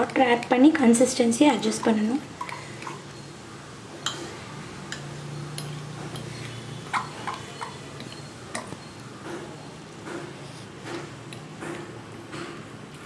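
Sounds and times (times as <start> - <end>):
fork clinking against ceramic bowl: 6.9 - 9.0.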